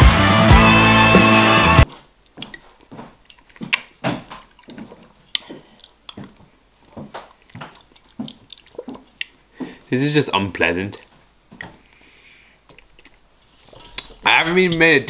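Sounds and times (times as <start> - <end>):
music: 0.0 - 1.8
wet eating sounds: 1.8 - 9.8, 10.9 - 12.0, 12.6 - 13.2.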